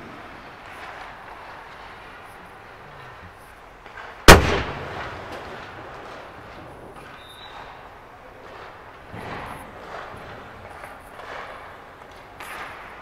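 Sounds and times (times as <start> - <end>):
hockey puck shot crack: 9.2 - 13.0.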